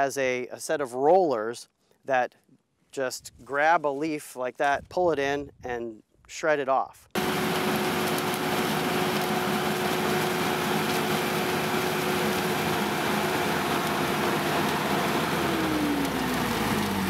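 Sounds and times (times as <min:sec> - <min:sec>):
tractor machine drone: 0:07.2 - 0:17.0.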